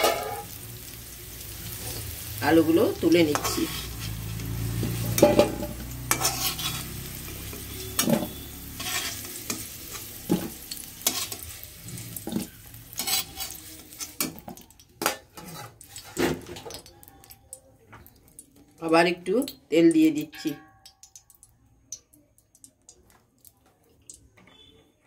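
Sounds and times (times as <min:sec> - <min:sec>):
metal spatula scraping metal pan: 0:00.0 - 0:00.6, 0:02.9 - 0:16.7
oil sizzling: 0:00.0 - 0:21.5.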